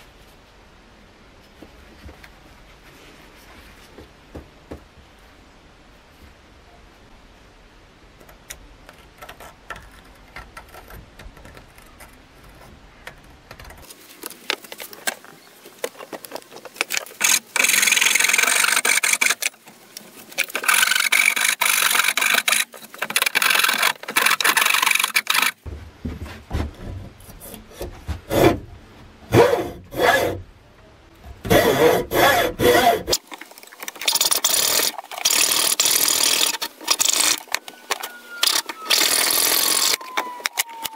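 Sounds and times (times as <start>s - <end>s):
hacksaw cutting wood: 16.9s - 19.5s, 20.4s - 25.6s, 27.4s - 28.6s, 29.3s - 30.4s, 31.4s - 33.2s, 34.1s - 37.5s, 38.4s - 40.0s
file scraping wood: 29.3s - 30.4s, 31.4s - 33.2s.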